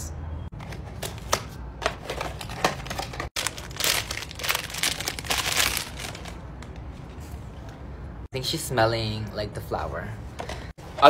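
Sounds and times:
plastic bag rustling and crinkling: 2.4s - 6.4s.

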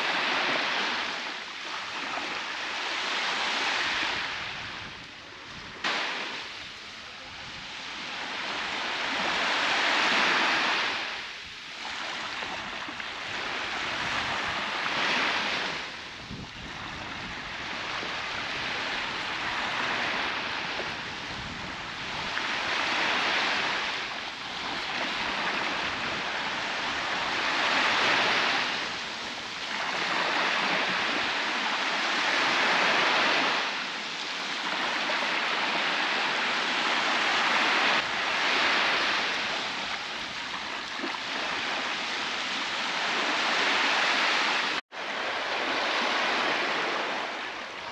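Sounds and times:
waves breaking on sandy beach: 0.0s - 47.9s.

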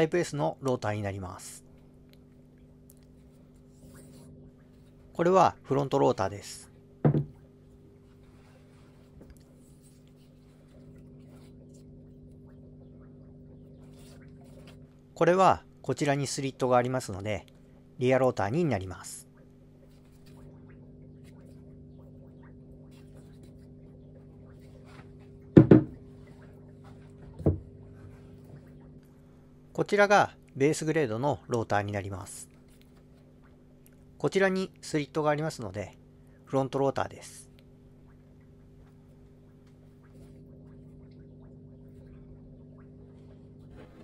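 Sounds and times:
steady low hum: 0.0s - 44.0s
heavy knocks on bench: 7.0s - 7.4s, 25.6s - 26.0s.

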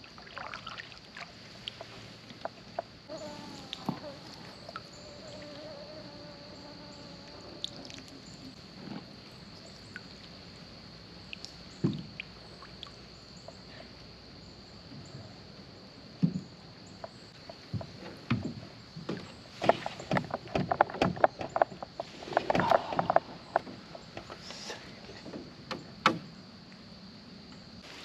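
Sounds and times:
water sloshing: 0.0s - 5.5s
high insect whine: 0.0s - 28.0s
paddle strokes knocking hull: 17.4s - 24.4s.

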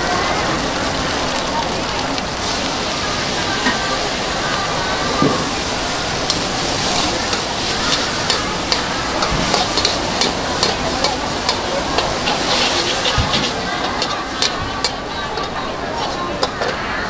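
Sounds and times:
noodles sizzling in a wok: 0.0s - 17.0s
metal spatula scraping a pan: 6.9s - 10.8s, 11.5s - 16.9s.

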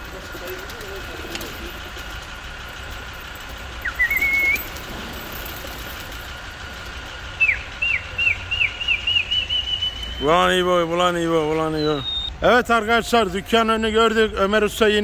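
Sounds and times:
person whistling: 3.9s - 4.7s, 11.8s - 12.3s.

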